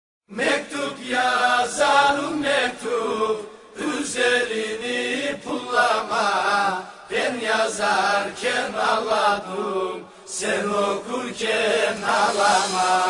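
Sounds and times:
person singing slow folk song: 0.3s - 13.0s.

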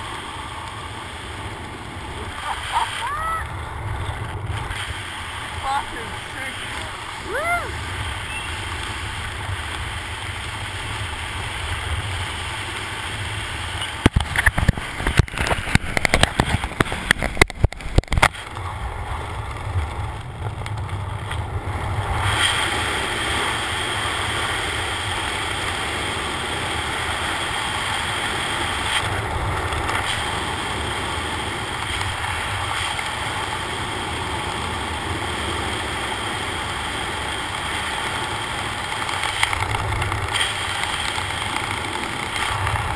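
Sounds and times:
freefall wind roar: 0.0s - 42.9s
sharp cracks and knocks: 13.9s - 18.7s, 38.9s - 42.9s.

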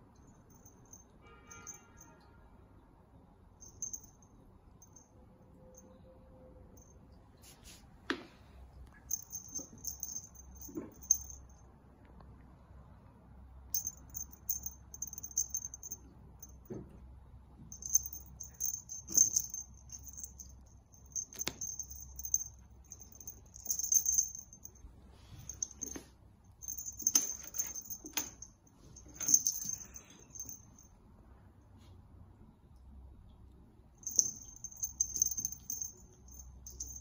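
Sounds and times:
small bell jingling: 0.4s - 2.2s, 3.6s - 5.1s, 8.9s - 11.6s, 13.7s - 16.6s, 17.7s - 31.0s, 34.0s - 37.0s.

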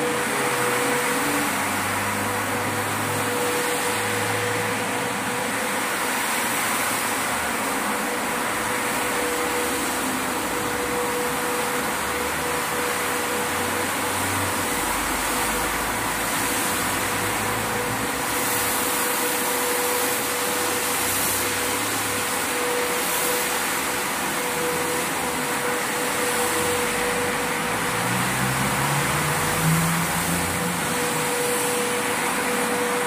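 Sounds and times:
carpet washing machine motor hum: 0.0s - 33.0s.

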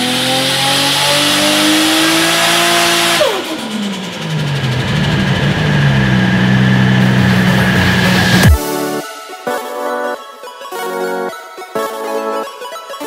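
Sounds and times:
turbocharged car engine revving: 0.0s - 8.6s.

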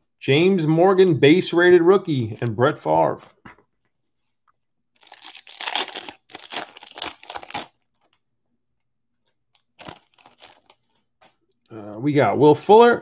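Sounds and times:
wrapper tearing and crinkling: 5.0s - 8.2s, 9.6s - 10.9s.

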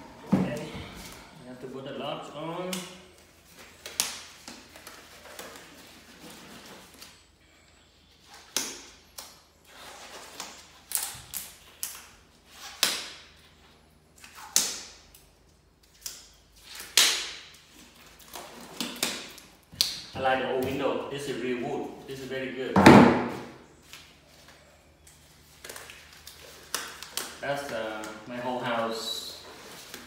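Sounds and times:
gloves rustling: 2.0s - 7.4s, 23.3s - 30.0s
disposable gloves snapping: 3.6s - 5.6s, 14.2s - 17.6s, 25.1s - 28.2s.

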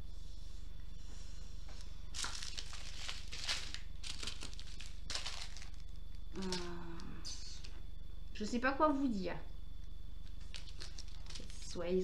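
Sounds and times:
plastic bags crinkling: 2.1s - 6.2s, 10.4s - 11.8s.

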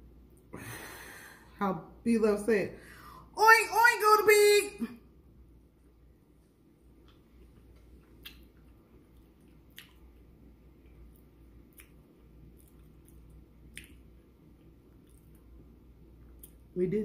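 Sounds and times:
chewing with mouth closed: 6.9s - 15.6s
wet mouth clicks: 7.0s - 10.3s, 11.1s - 14.2s, 16.3s - 16.6s.

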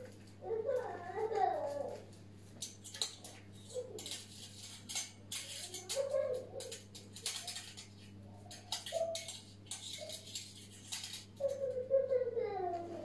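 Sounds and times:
curtain hooks rattling on rod: 2.6s - 11.8s.

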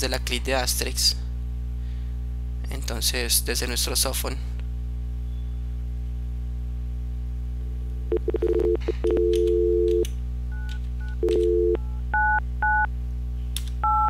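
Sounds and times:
two-tone dial tone: 8.1s - 10.0s, 11.2s - 12.9s
keypad beeps: 10.6s - 12.9s.

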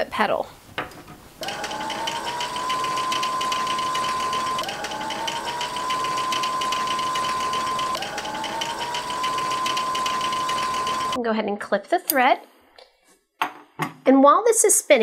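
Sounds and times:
sewing machine motor whine: 1.4s - 11.2s.

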